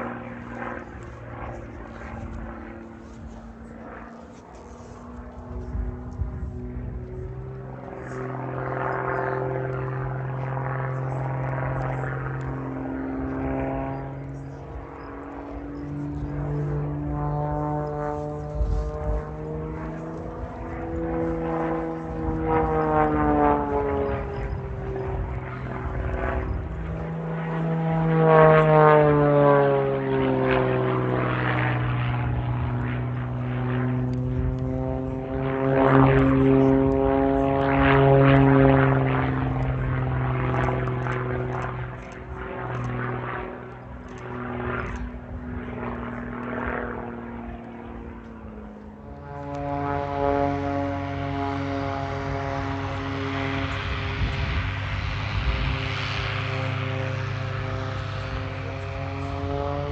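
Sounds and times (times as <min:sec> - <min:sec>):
biplane engine and propeller drone: 0:00.0 - 0:59.9.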